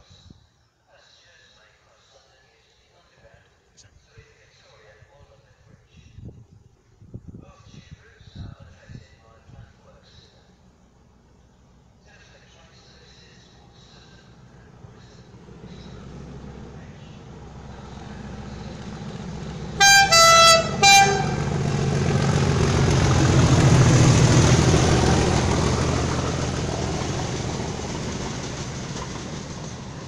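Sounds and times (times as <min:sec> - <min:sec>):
locomotive diesel engine passing: 0:10.5 - 0:30.0
locomotive three-tone horn: 0:19.8 - 0:21.7.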